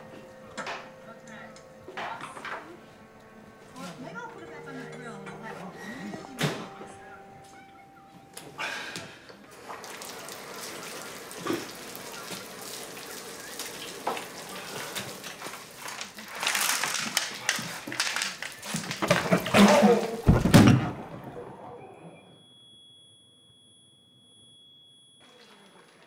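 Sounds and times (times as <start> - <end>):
water running into a bathtub: 9.5 - 20.4
heavy thumps: 19.5 - 21.4.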